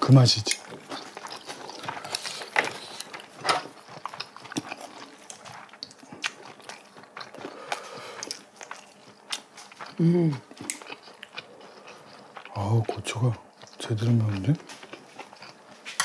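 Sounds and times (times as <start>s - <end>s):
chewing: 0.4s - 16.0s.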